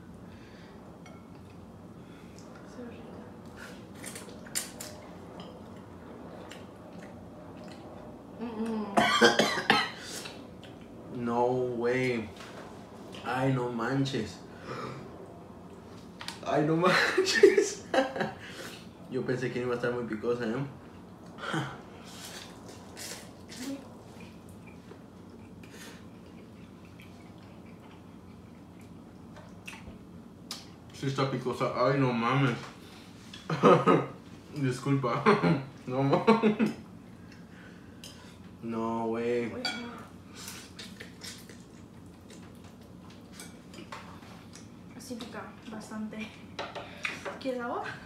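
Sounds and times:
chewing: 22.2 - 30.8, 40.3 - 44.7.

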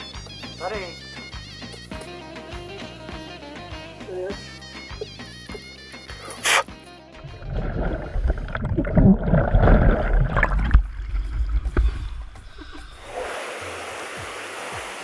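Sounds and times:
water sloshing and gurgling: 7.2 - 13.3
steady hiss: 12.2 - 15.0.

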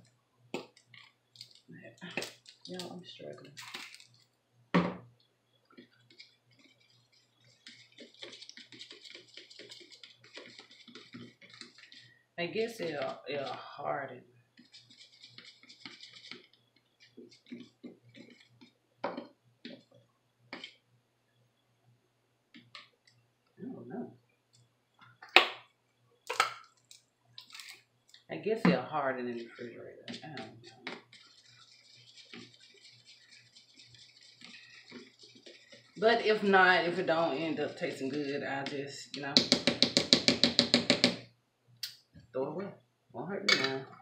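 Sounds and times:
jar thud on countertop: 4.8 - 5.0
spoon stirring in glass bowl: 5.8 - 12.1, 14.5 - 19.9, 29.4 - 36.5.

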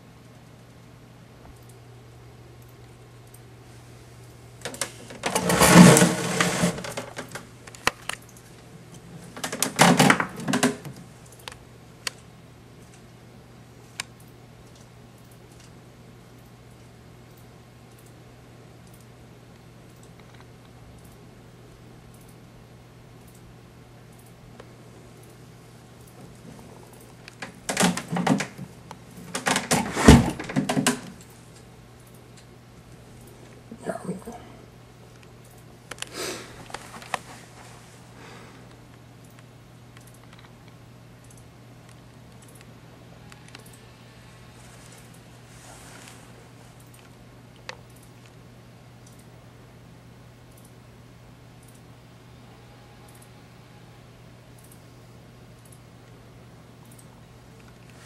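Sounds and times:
faint steady hum: 0.0 - 58.0
sharp clicks: 18.8 - 21.2, 38.7 - 43.8.

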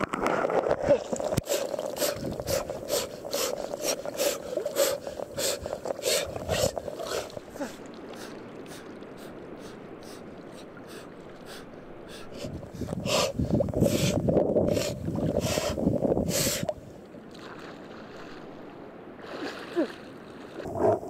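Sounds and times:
river washing: 0.0 - 13.6, 14.7 - 21.0
water splashing around wading man: 0.0 - 15.8, 16.5 - 21.0
man breathing hard: 1.5 - 10.2.

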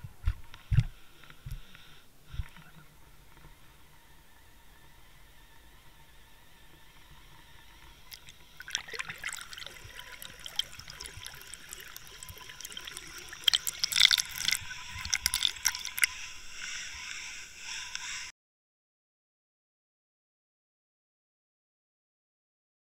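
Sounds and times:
water splashing and trickling: 8.0 - 16.4.

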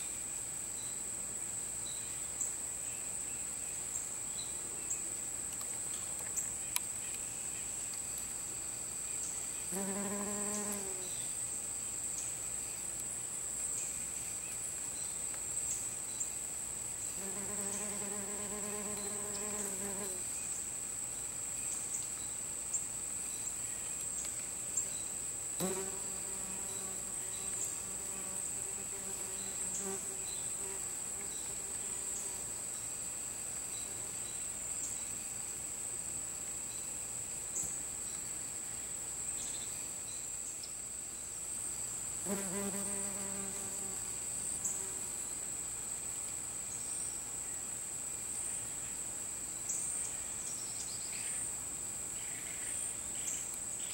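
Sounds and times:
insects singing: 9.5 - 11.3, 17.2 - 20.2, 25.6 - 32.5, 42.2 - 45.0
wasps buzzing in flight: 9.8 - 11.0, 17.2 - 20.2, 25.6 - 30.8, 42.3 - 44.0.

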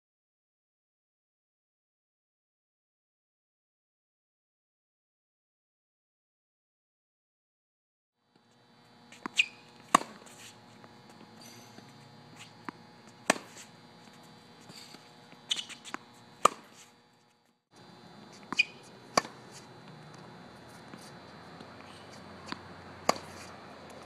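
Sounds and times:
faint steady hum: 8.2 - 24.0
racket hitting tennis ball: 9.0 - 16.9, 18.2 - 24.0
ball bouncing on hard court: 9.1 - 16.9, 18.4 - 20.3, 22.4 - 24.0
shoe squeaks on court: 9.1 - 17.4, 18.3 - 19.7.

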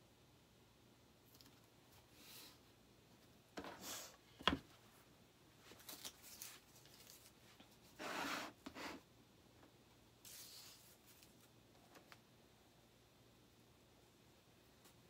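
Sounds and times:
rustling scrapes on cutting mat: 5.8 - 9.0, 10.2 - 11.3
wooden cutout sliding on mat: 8.0 - 9.0.

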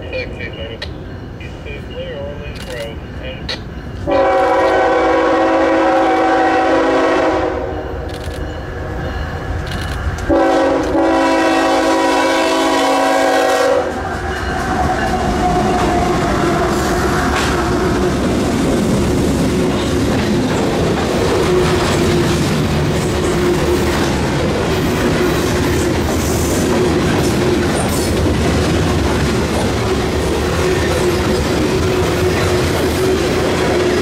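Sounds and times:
locomotive air horn blasts: 4.0 - 7.9, 10.3 - 14.0
train wheels clacking on rails: 13.9 - 34.0.

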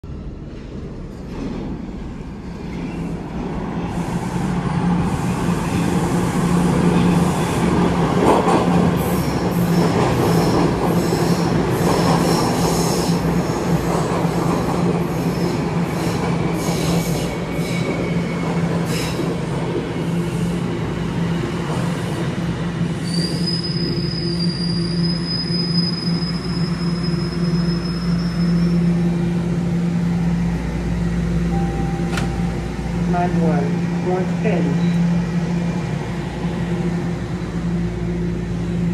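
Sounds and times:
subway train rumble: 0.0 - 38.9
high brake squeal: 23.0 - 29.0.

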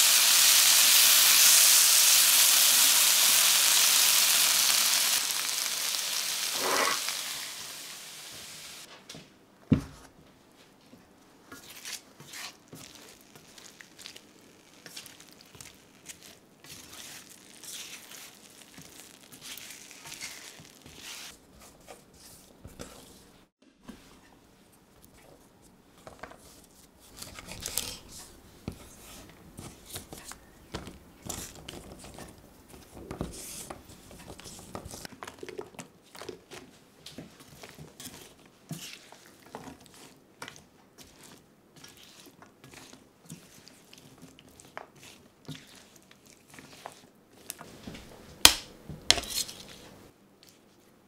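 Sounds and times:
metal utensil scraping frying pan: 5.0 - 7.4, 49.1 - 50.0
green beans snapping: 48.4 - 49.2.

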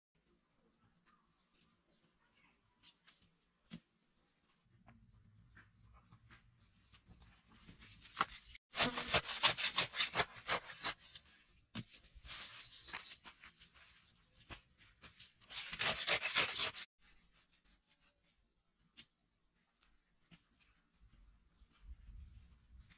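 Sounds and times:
hand tool scraping dry soil: 8.8 - 11.2, 15.3 - 16.9.

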